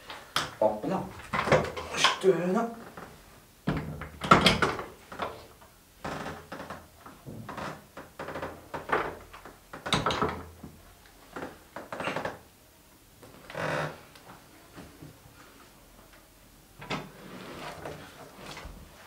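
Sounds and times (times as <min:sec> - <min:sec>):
knocks and clatter of chair parts: 0:01.2 - 0:02.2, 0:02.8 - 0:12.4.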